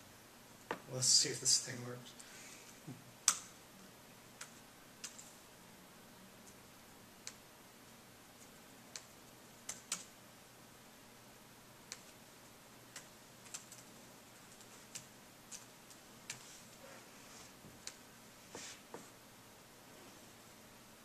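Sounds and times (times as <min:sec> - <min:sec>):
laptop keystrokes and clicks: 0:04.4 - 0:05.4, 0:07.2 - 0:07.4, 0:08.4 - 0:10.2, 0:11.9 - 0:12.2, 0:12.9 - 0:13.9, 0:14.5 - 0:16.5.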